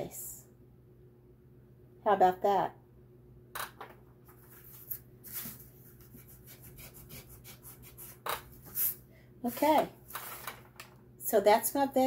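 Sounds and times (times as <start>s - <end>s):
pencil scratching on paper: 5.4s - 9.0s.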